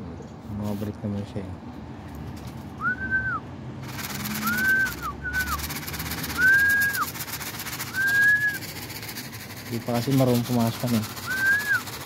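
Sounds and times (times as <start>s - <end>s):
person whistling short whistles: 2.8s - 3.4s, 4.3s - 5.6s, 6.3s - 7.1s, 7.8s - 8.6s, 11.2s - 11.9s.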